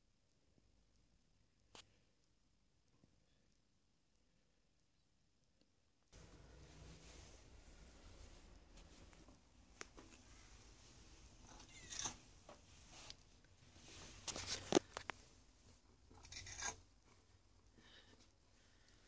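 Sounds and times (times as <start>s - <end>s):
cat rustling against microphone: 6.2s - 17.3s.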